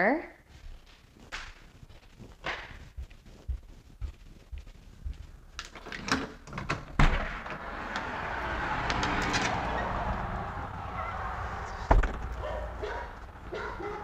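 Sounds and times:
door handle and latch clicking: 0:05.6 - 0:07.6
door shutting with thud: 0:06.0 - 0:08.0, 0:11.8 - 0:12.4
outdoor noise rushing: 0:06.7 - 0:14.0.

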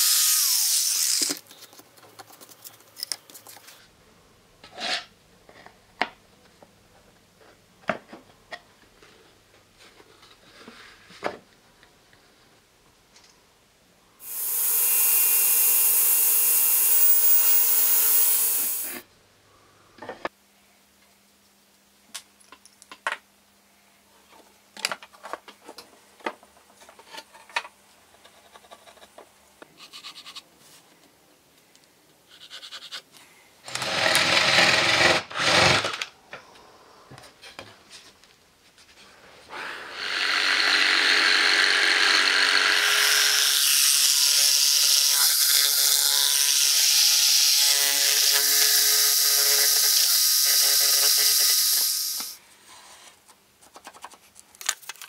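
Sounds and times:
cordless drill boring through wood: 0:00.0 - 0:01.4, 0:14.2 - 0:19.0, 0:33.7 - 0:36.0, 0:39.5 - 0:52.4
jigsaw sawing wood: 0:14.2 - 0:19.0, 0:33.7 - 0:36.0, 0:39.6 - 0:52.3.

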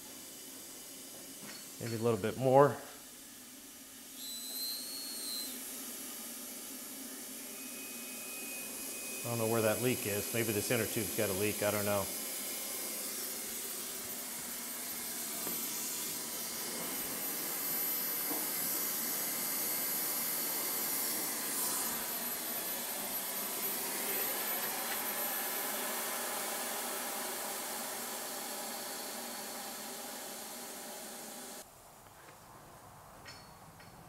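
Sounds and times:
compressed air hissing: 0:00.0 - 0:31.6
air escaping at a leak: 0:03.0 - 0:31.6.

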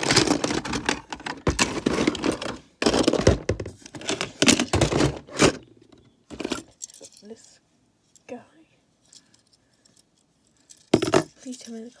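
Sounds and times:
plastic toy bricks clattering: 0:00.0 - 0:05.6, 0:10.7 - 0:12.0.

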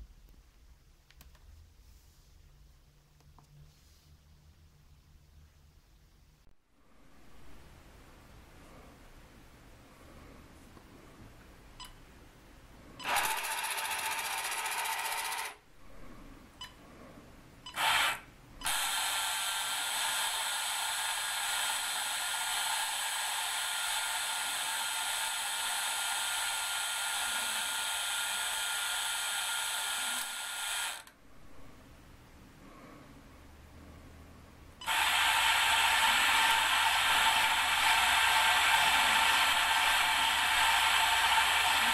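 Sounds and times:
toy electric motor whine: 0:13.0 - 0:15.6, 0:17.7 - 0:31.2, 0:34.8 - 0:41.9.

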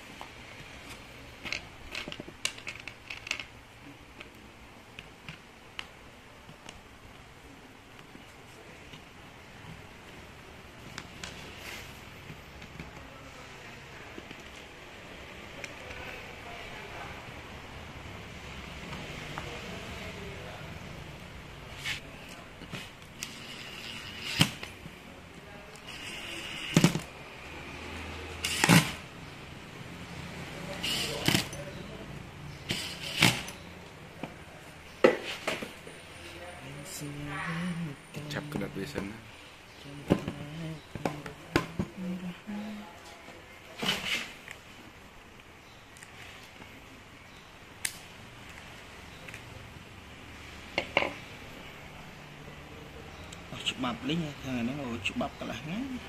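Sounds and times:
power driver driving screws: 0:23.2 - 0:24.8, 0:28.4 - 0:29.0, 0:30.8 - 0:31.6, 0:32.6 - 0:33.6.

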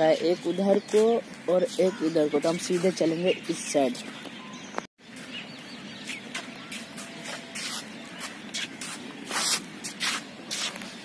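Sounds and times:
footsteps on gritty pavement: 0:00.0 - 0:01.6, 0:05.1 - 0:11.0.

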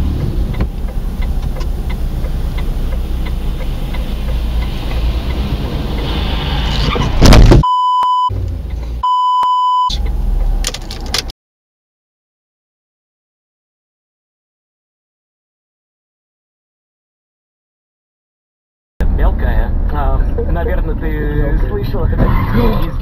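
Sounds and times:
car running in traffic: 0:00.0 - 0:11.3, 0:19.0 - 0:23.0
censor bleeps: 0:07.6 - 0:08.3, 0:09.0 - 0:10.0.

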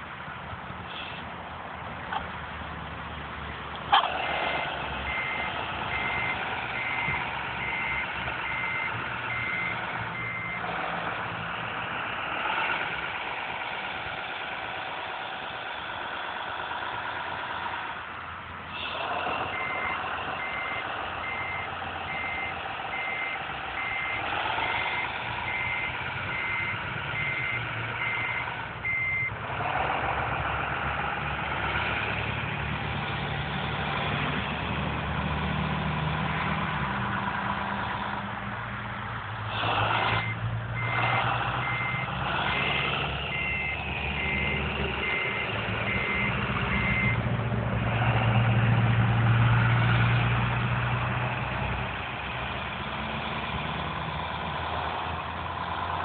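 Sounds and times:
diesel engine running: 0:00.0 - 0:56.0
reversing beeps: 0:05.1 - 0:10.7, 0:19.5 - 0:29.4, 0:40.2 - 0:47.2.

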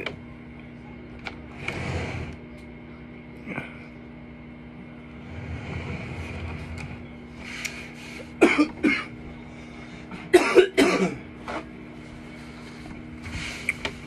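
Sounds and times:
faint steady hum: 0:00.0 - 0:14.0
man coughing: 0:08.4 - 0:09.2, 0:10.1 - 0:11.3.

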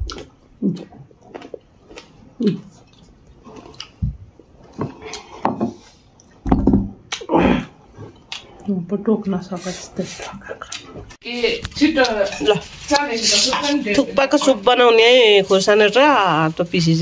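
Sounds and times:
chewing crunchy cucumber: 0:00.0 - 0:05.4.

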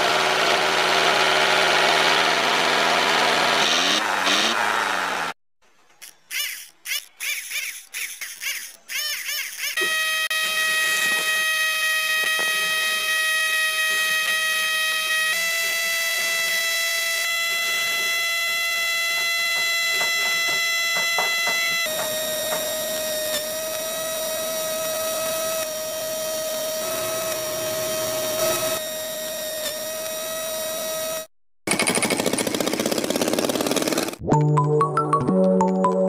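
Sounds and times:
small electric motor whining: 0:06.0 - 0:31.3.

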